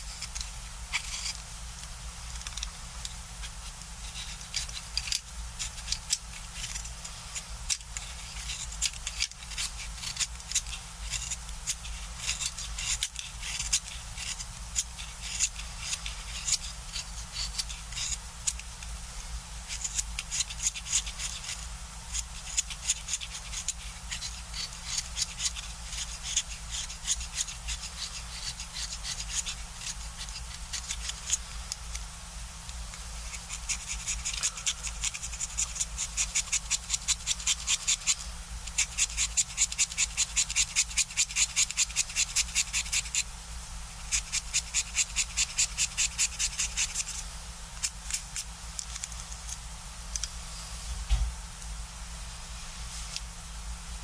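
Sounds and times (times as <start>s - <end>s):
knife blade scraping wood: 0.0s - 1.4s, 3.4s - 18.6s.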